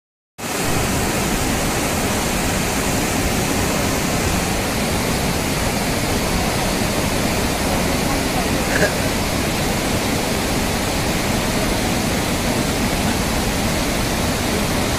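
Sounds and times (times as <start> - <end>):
river rushing: 0.4 - 14.9.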